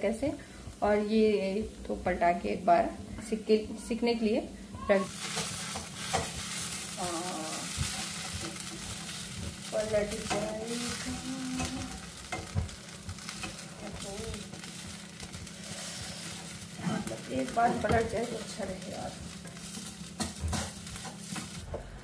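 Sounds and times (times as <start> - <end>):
pancake sizzling in a frying pan: 5.0 - 22.0.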